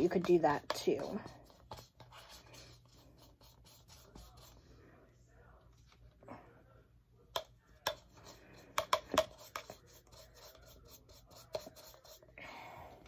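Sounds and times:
paintbrush scratching on plastic: 0.0 - 4.8, 7.8 - 12.4.

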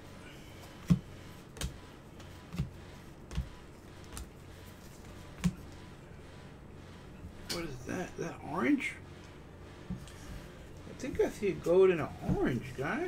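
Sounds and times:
cards tapping: 0.6 - 4.4, 5.0 - 5.7.

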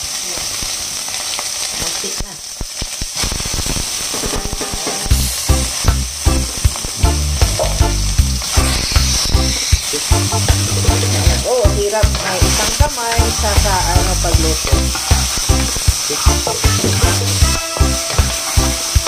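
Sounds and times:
onions sizzling in hot oil: 0.0 - 19.0
low regular beat: 4.1 - 19.0.

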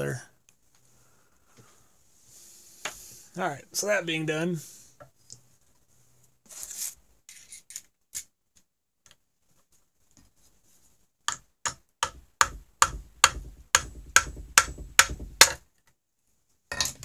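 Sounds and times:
screwdriver tapping metal: 11.3 - 15.6.

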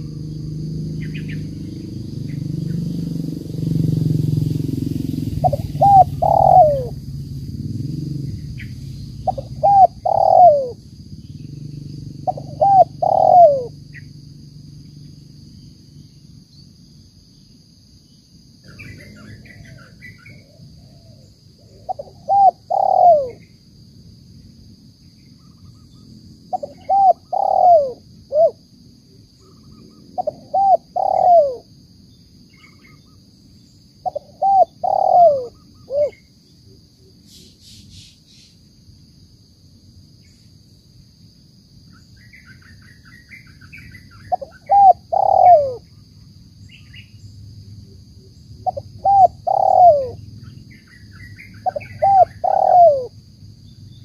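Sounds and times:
dove cooing: 5.4 - 14.0, 18.6 - 23.4, 26.5 - 28.6, 29.4 - 31.7, 34.0 - 36.3, 44.2 - 46.0, 47.8 - 50.3, 51.3 - 53.2.

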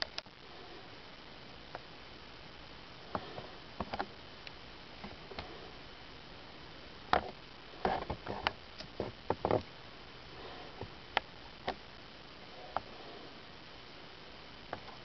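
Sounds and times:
faint hiss: 0.0 - 15.0.

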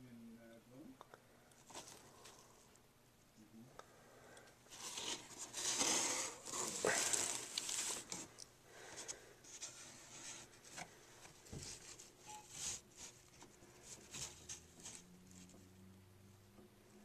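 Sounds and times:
hand rubbing cardboard box: 4.7 - 8.3, 9.0 - 15.6.

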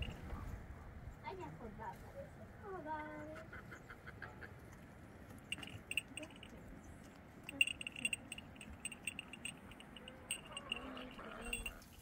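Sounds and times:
light metallic jingling: 5.4 - 12.0.

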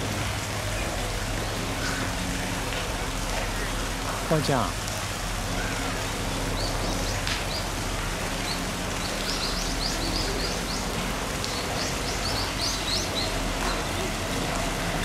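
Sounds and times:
steady hiss: 0.0 - 15.0
small birds chirping: 5.4 - 15.0.

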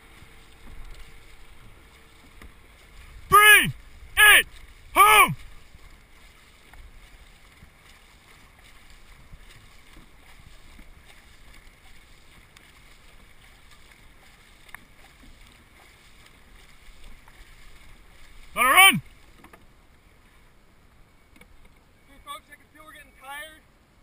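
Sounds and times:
water wash and paddle strokes: 0.0 - 24.0
wind on microphone: 2.9 - 6.0
person shouting: 3.3 - 5.4, 18.6 - 19.0.

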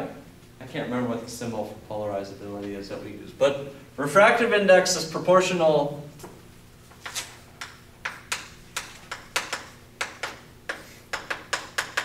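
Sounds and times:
chalk tapping on blackboard: 7.6 - 12.0.

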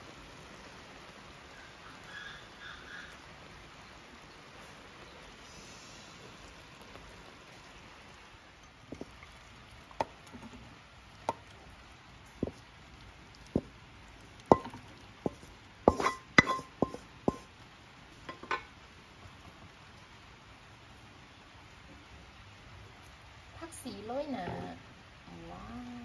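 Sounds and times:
spatula knocking on wok: 12.4 - 12.6, 13.5 - 13.7, 14.5 - 17.5
clinks on ceramic plate: 15.9 - 17.4, 18.3 - 18.7.

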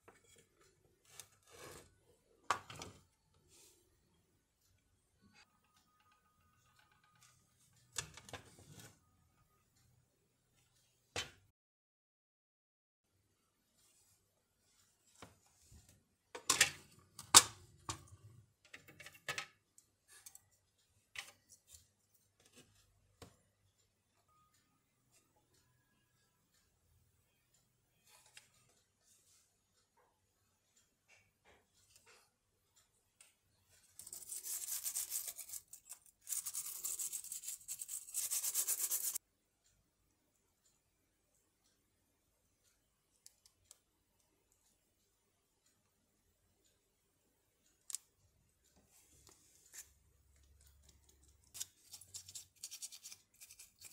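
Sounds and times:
brush scrubbing circuit board: 34.0 - 39.2, 51.8 - 53.9.

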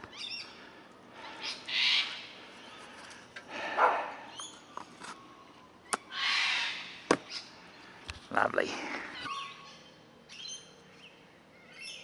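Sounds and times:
harsh bird squawks: 1.3 - 2.4, 5.9 - 7.5.

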